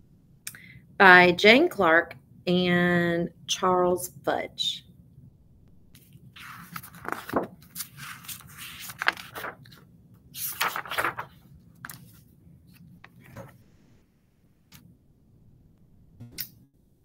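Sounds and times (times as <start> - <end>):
book pages rustling and turning: 5.9 - 14.0.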